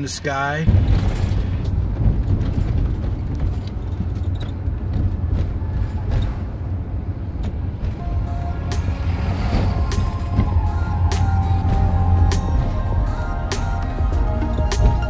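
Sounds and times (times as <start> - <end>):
engine and road noise rumble: 0.0 - 15.0
light clicks and rattles: 0.7 - 6.5.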